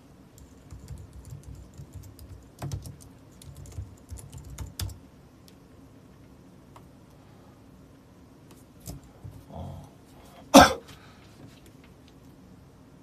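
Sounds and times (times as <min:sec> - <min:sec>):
computer keyboard typing: 0:00.4 - 0:05.0.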